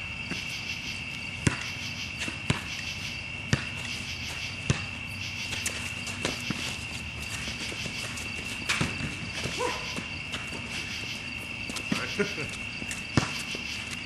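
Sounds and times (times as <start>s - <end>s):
crickets chirping: 0.0s - 14.0s
basketball bouncing on hard court: 1.4s - 2.8s, 3.5s - 4.9s, 7.6s - 10.6s, 12.8s - 13.7s.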